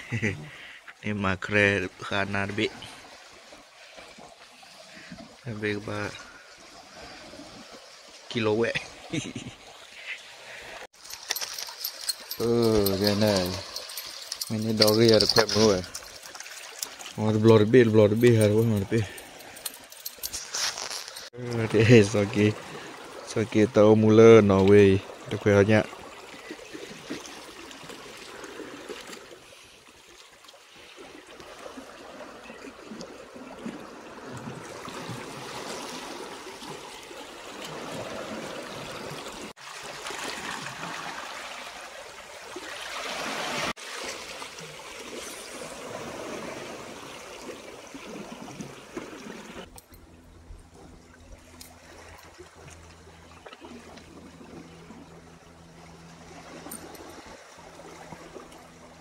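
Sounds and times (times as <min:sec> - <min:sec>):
sea water splashing against rocks: 0:30.2 - 0:49.7.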